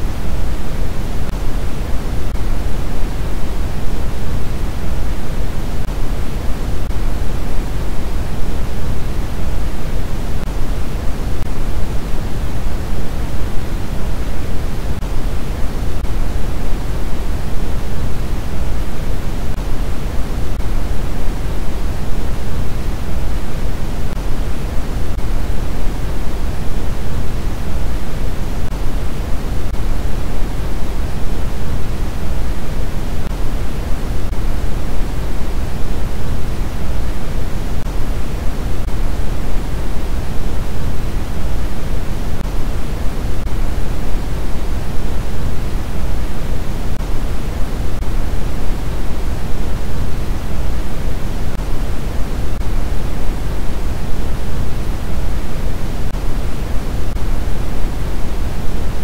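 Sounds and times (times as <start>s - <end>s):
steady synthetic noise rush: 0.0s - 59.0s.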